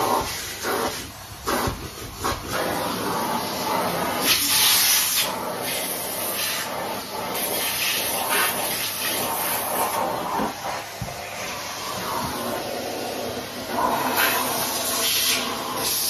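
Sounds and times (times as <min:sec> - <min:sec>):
vacuum cleaner sucking carpet: 0:00.0 - 0:16.0.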